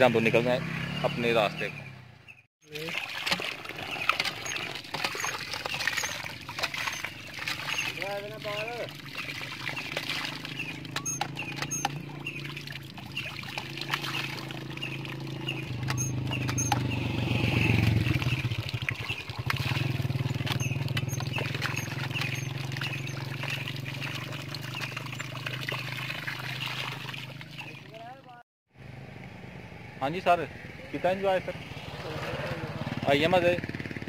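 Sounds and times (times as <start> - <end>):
water splashing from spout: 2.7 - 28.0
pump handle clanking: 2.8 - 17.0, 17.9 - 27.9.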